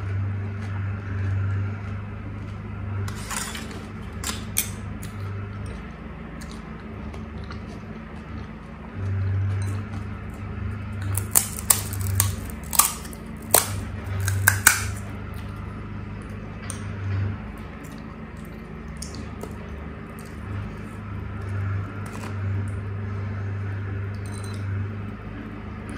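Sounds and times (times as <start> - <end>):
crisp shells cracking: 11.1 - 15.0.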